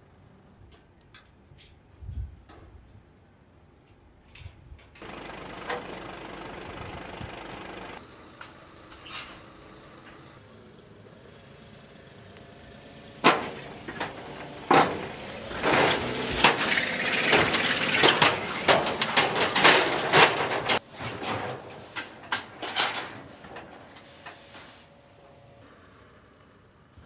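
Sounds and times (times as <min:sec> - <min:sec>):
metal ramp plates clanking: 0:05.0 - 0:10.4, 0:13.2 - 0:24.4.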